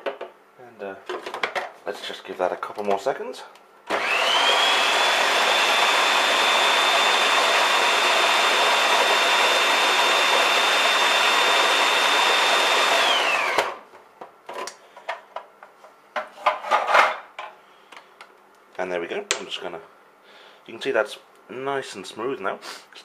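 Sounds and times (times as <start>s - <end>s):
food processor motor whining: 3.9s - 13.8s.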